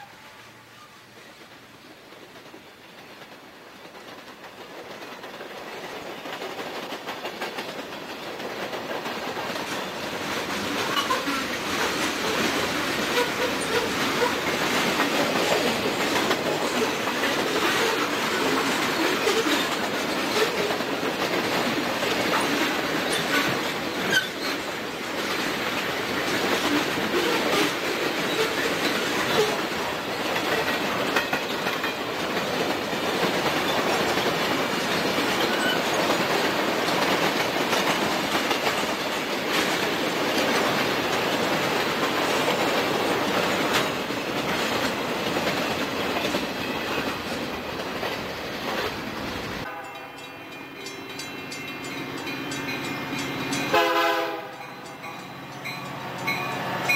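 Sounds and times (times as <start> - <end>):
freight train wheels rumbling: 0.0 - 56.9
wheels clacking over rail joints: 2.0 - 56.9
distant train horn: 49.7 - 51.0, 53.7 - 54.9.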